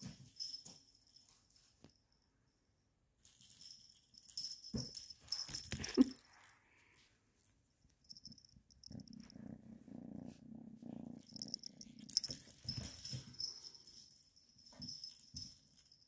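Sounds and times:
bell jingling in toy ball: 0:00.0 - 0:01.7, 0:03.2 - 0:06.5, 0:08.0 - 0:09.2, 0:11.2 - 0:16.0
kitten purring: 0:08.2 - 0:12.6.

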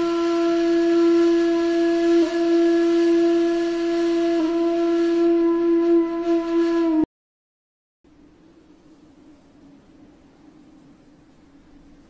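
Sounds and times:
held flute-like note: 0:00.0 - 0:07.1.

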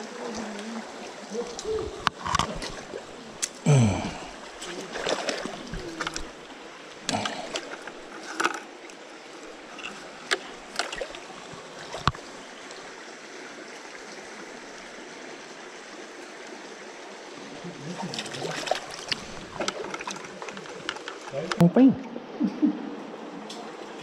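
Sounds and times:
creek water flowing: 0:00.0 - 0:24.0
landing net clicks and rustles: 0:18.2 - 0:21.6.

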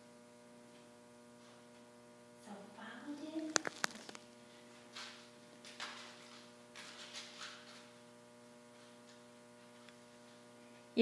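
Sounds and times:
steady electrical hum: 0:00.0 - 0:11.0.

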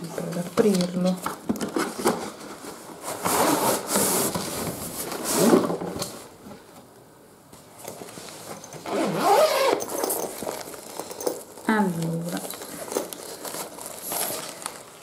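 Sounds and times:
tripod scraping and rustling in bag: 0:01.7 - 0:05.7, 0:07.8 - 0:15.0.

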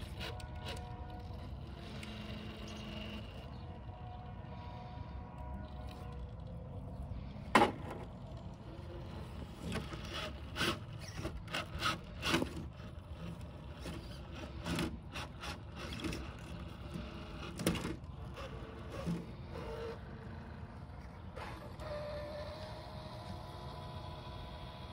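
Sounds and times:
faint mechanical whir: 0:00.0 - 0:24.9.

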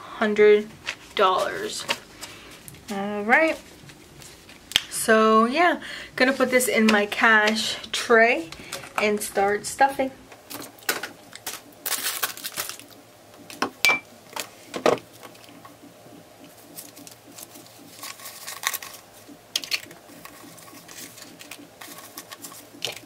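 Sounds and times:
banknotes rustling: 0:00.8 - 0:04.7, 0:10.5 - 0:13.0, 0:16.5 - 0:23.0.

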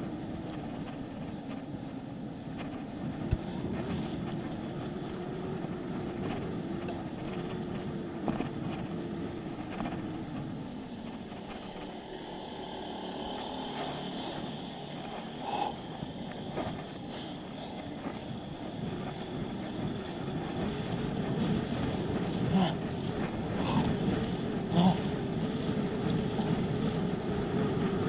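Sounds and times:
bicycle road noise: 0:00.0 - 0:28.0
light rattles and clicks: 0:06.0 - 0:28.0.

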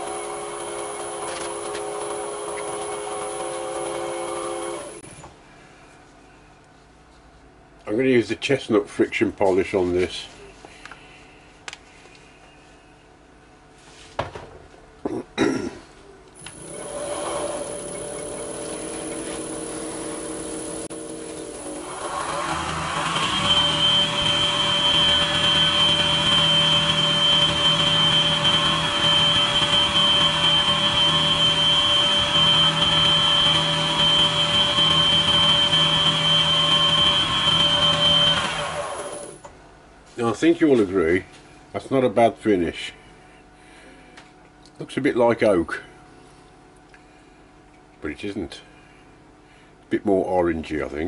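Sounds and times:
wood lathe running: 0:00.0 - 0:05.0, 0:16.5 - 0:39.4.

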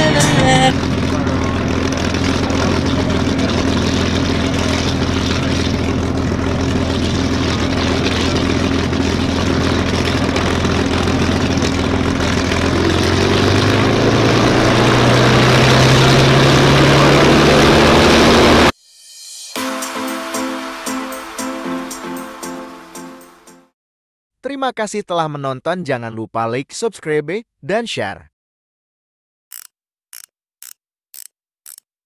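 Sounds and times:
aircraft engine idling: 0:00.0 - 0:13.0.

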